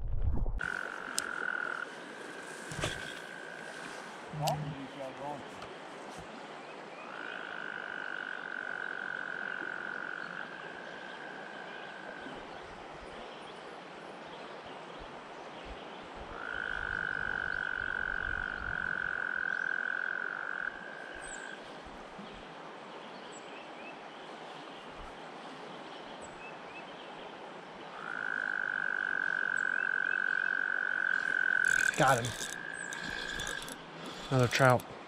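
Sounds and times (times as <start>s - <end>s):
frog trilling: 0.6s - 4.8s, 28.0s - 34.8s
shallow river rushing: 0.6s - 6.9s.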